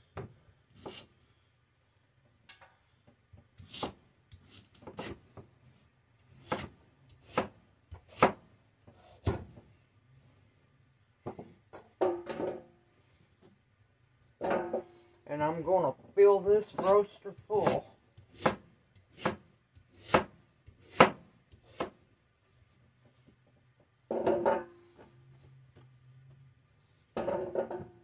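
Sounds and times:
knife chopping on cutting board: 3.6s - 5.2s, 6.4s - 9.5s, 16.7s - 22.0s.

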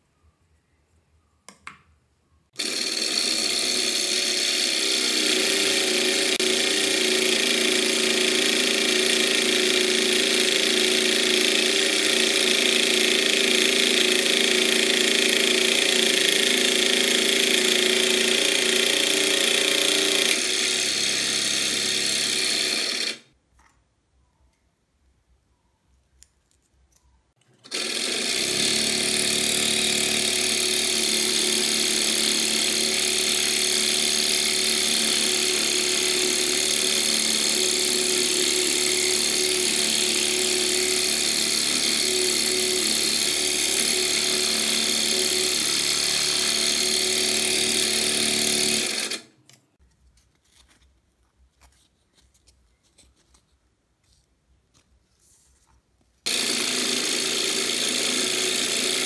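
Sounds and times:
scroll saw cutting wood: 2.6s - 23.4s, 27.6s - 49.3s, 56.2s - 59.0s.

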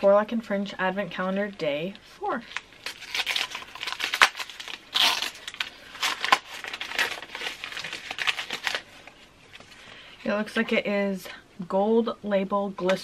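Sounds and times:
wrapping paper tearing and crumpling: 2.4s - 9.1s.

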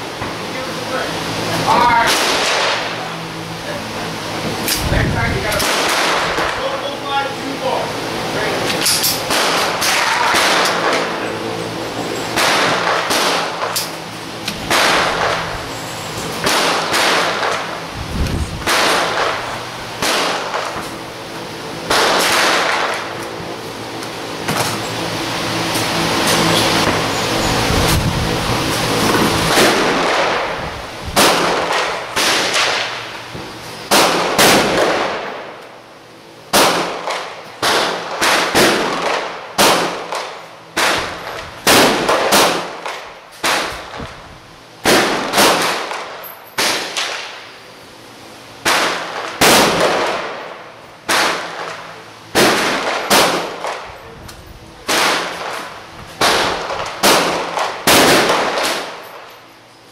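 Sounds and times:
gunshots with echo: 2.0s - 2.9s, 9.3s - 11.1s, 12.4s - 13.7s, 16.4s - 17.7s, 18.6s - 19.4s, 20.0s - 20.8s, 21.9s - 23.1s.

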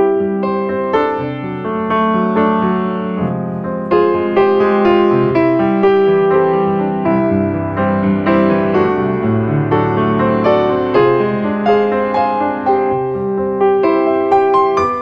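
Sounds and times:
piano melody: 0.0s - 15.0s.

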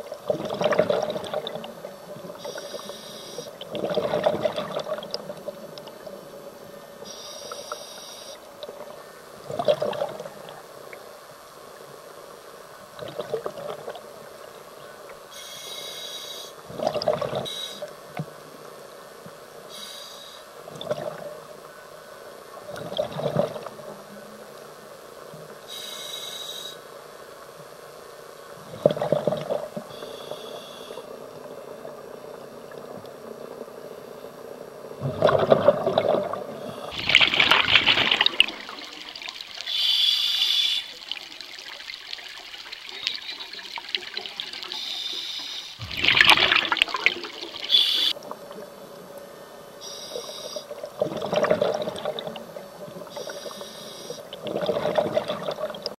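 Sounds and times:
exhaled bubbles gushing: 0.0s - 1.8s, 3.6s - 5.5s, 9.4s - 10.6s, 16.7s - 17.5s, 22.7s - 23.7s, 35.0s - 39.8s, 40.8s - 45.0s, 45.8s - 48.6s, 50.7s - 53.3s, 54.3s - 56.0s
regulator inhale hiss: 2.4s - 3.6s, 7.0s - 8.4s, 15.3s - 16.6s, 19.7s - 20.6s, 25.7s - 26.8s, 29.9s - 31.1s, 39.7s - 41.0s, 44.7s - 45.8s, 47.6s - 48.2s, 49.8s - 50.7s, 53.1s - 54.3s.

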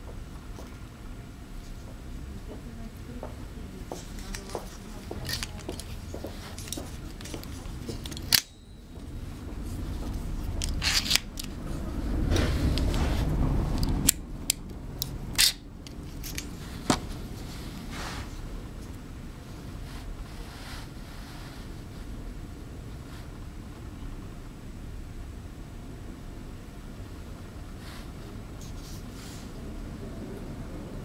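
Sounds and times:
rubbing and handling noise: 3.7s - 22.2s, 27.6s - 29.6s
metal bipod clicking and snapping: 5.2s - 6.0s, 6.6s - 8.6s, 10.6s - 11.6s, 13.8s - 16.5s.

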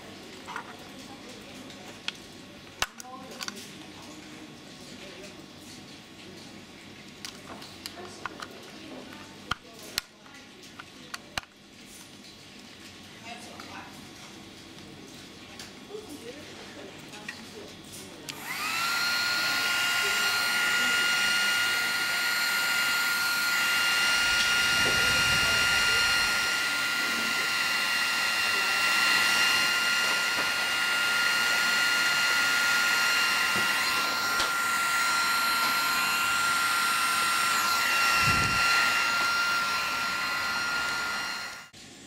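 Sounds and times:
electric fan motor whining: 18.3s - 41.8s.

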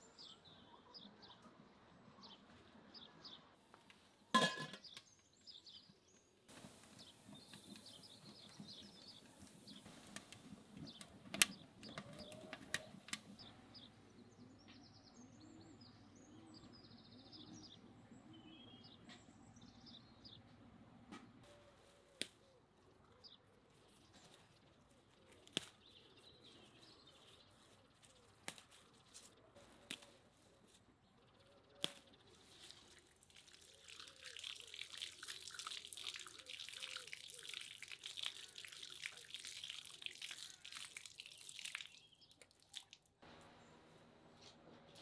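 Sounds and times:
faint bird chirps: 4.8s - 20.3s
tap water splashing onto concrete: 6.7s - 13.4s, 32.9s - 43.1s.

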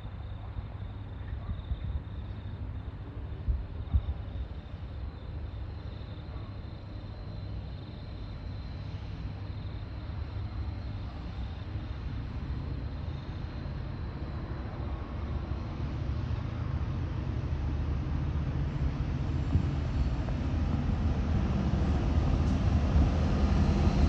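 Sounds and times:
locomotive engine rumble: 7.0s - 24.0s.

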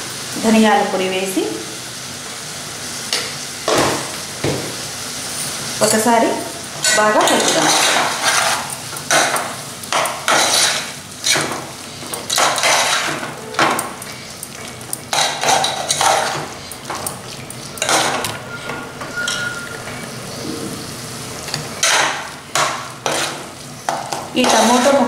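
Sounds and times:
steel spoon scraping metal pot: 6.9s - 8.8s, 10.3s - 11.4s, 17.6s - 20.1s.

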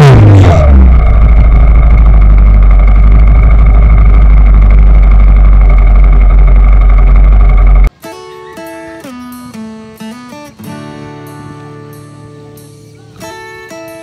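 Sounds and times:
vehicle engine running: 0.0s - 7.9s.

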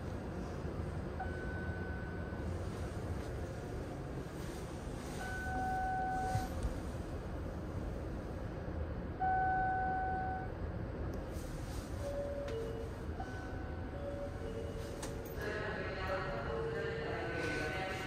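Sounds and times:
train interior rumble: 0.0s - 18.0s
two-pitch beeps: 5.2s - 6.4s.

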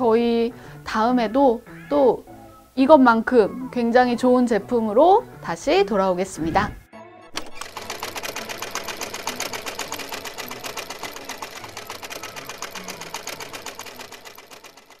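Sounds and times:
fast mechanical clatter: 7.4s - 15.0s.

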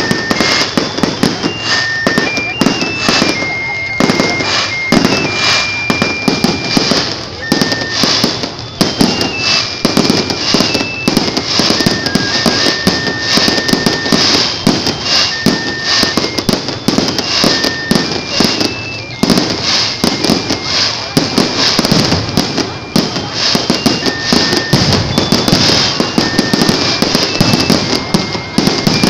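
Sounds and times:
fireworks bangs: 0.0s - 29.0s
high-pitched crackling hiss: 0.0s - 29.0s.

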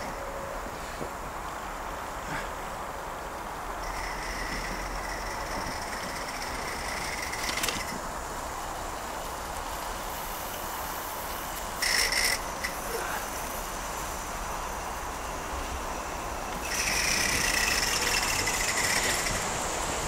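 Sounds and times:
steam hissing: 0.0s - 20.0s.

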